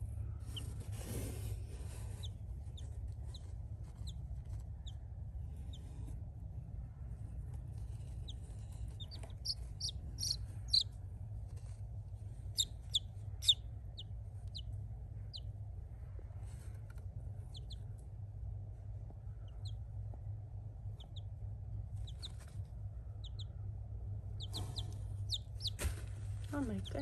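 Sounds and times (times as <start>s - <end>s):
steady low hum: 0.0s - 27.0s
chicks peeping: 1.9s - 5.0s, 7.8s - 11.8s, 12.5s - 15.5s, 17.4s - 18.0s, 19.2s - 19.9s, 20.9s - 23.6s, 24.3s - 26.0s.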